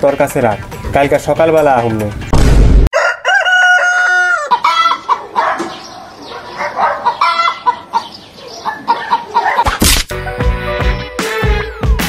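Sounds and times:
rooster crowing: 2.9 - 8.0.

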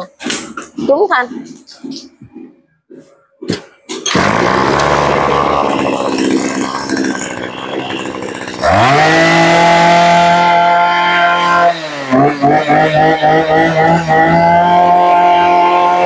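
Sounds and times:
brush cutter engine revving: 4.1 - 16.0.

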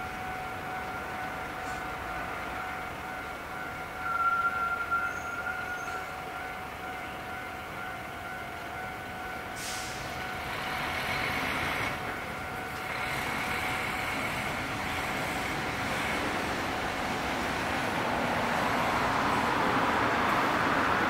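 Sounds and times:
diesel locomotive engine running: 5.7 - 21.0.

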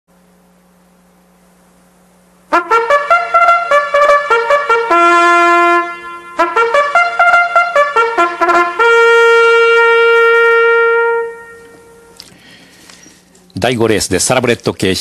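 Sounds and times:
faint low hum: 0.1 - 15.0
trumpet fanfare: 2.5 - 12.2.

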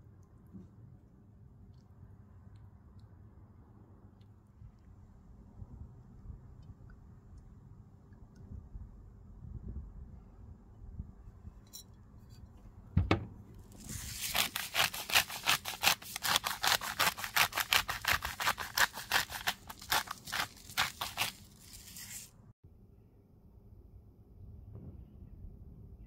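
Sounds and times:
soft thump: 13.0 - 13.4.

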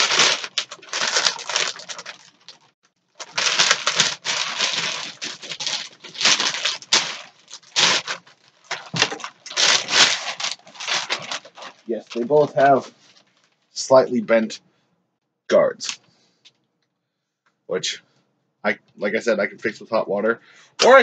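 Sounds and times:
packaging crinkling and tearing: 0.0 - 12.5.

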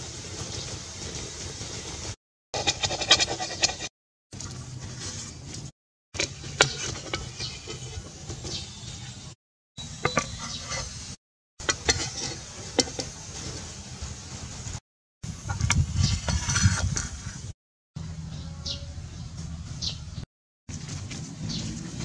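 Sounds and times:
metal spatula scraping a wok: 2.6 - 3.9, 4.7 - 13.8, 15.5 - 17.5.

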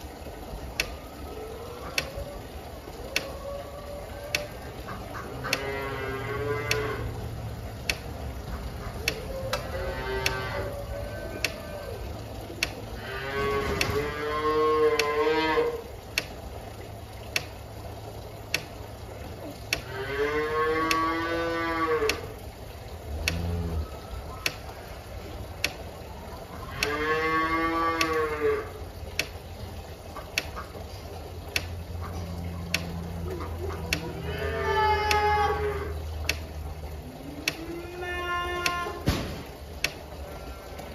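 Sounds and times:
sharp ticking: 4.3 - 10.8, 14.9 - 15.2, 15.8 - 20.0, 20.8 - 21.2, 22.0 - 27.0, 27.9 - 37.8, 39.6 - 40.9
cattle mooing: 5.2 - 7.5, 9.2 - 12.0, 13.0 - 15.9, 19.8 - 22.3, 26.6 - 28.8, 33.8 - 36.1, 37.2 - 39.0.

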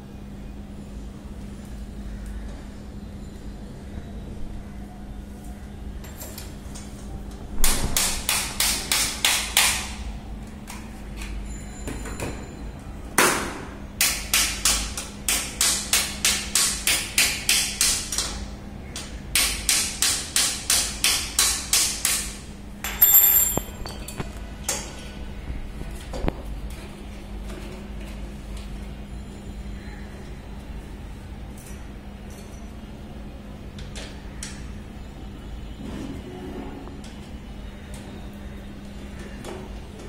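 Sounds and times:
sharp knocks of metal parts: 22.8 - 24.8.

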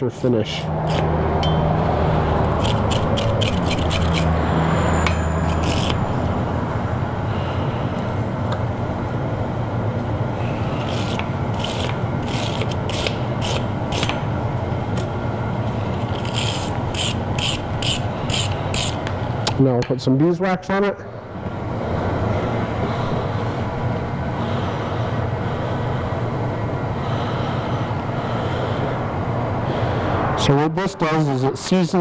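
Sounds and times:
steady low hum: 0.0 - 32.0
wire brush scrubbing iron: 2.6 - 4.3, 5.0 - 6.0, 10.7 - 14.2, 15.9 - 19.1.

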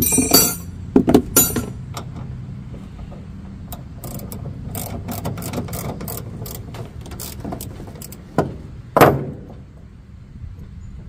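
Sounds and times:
ratchet wrench clicking: 3.7 - 8.2.

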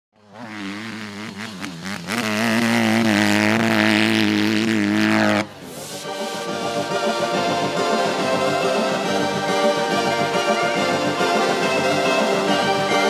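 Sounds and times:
motocross bike engine revving: 0.2 - 9.2.

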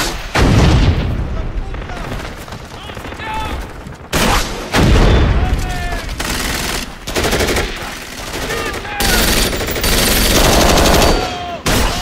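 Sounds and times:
rapid automatic gunfire: 1.6 - 5.0, 5.9 - 11.3.

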